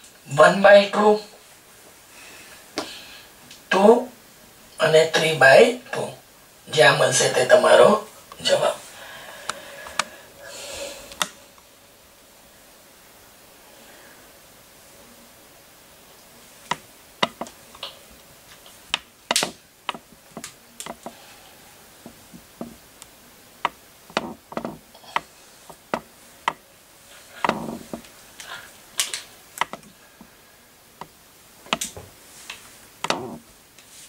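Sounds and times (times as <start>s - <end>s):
sharp clicks and light knocks: 16.7s - 21.2s, 22.0s - 26.6s, 27.4s - 29.9s, 31.0s - 33.4s.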